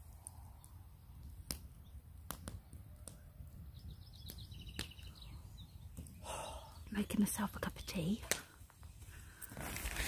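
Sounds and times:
campfire crackling and popping: 0.0 - 10.0
bird chirping: 3.6 - 8.2.

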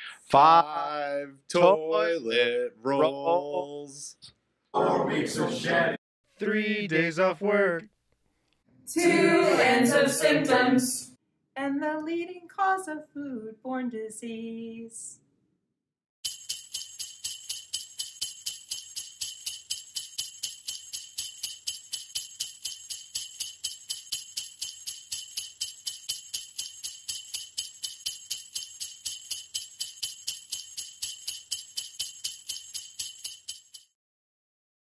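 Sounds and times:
jingle bells shaking: 16.2 - 33.9.

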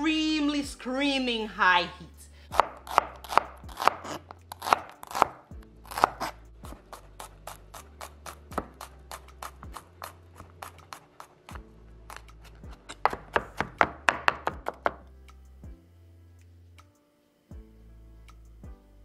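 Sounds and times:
knife chopping on plastic board: 2.5 - 15.0.

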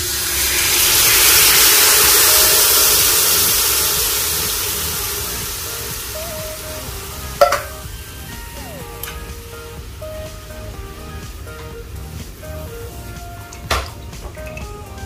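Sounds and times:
liquid pouring into metal pot: 0.0 - 6.6
faint background music: 0.0 - 15.0.

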